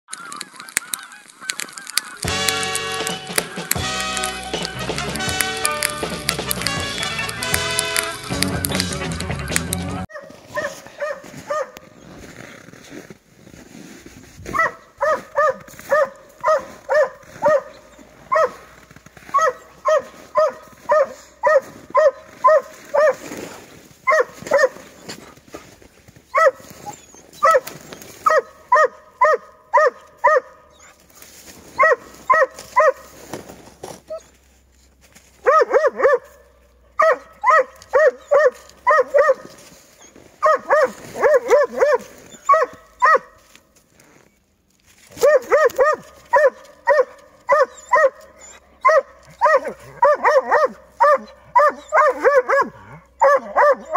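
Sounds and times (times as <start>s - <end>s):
dog barking: 10.1s - 11.8s, 14.5s - 24.9s, 26.3s - 30.8s, 31.7s - 33.2s, 35.4s - 39.7s, 40.4s - 43.4s, 45.1s - 53.9s.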